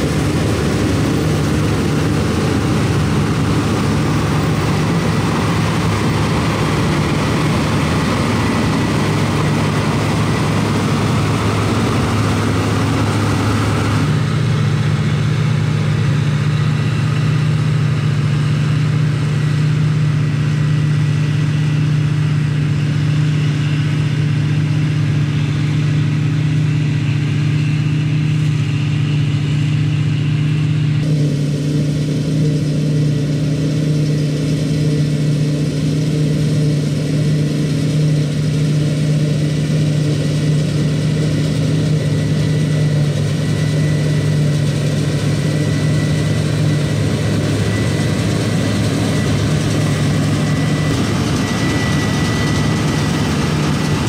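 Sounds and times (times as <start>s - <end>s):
combine harvester engine drone: 0.0s - 54.0s
thin high whine: 0.0s - 54.0s.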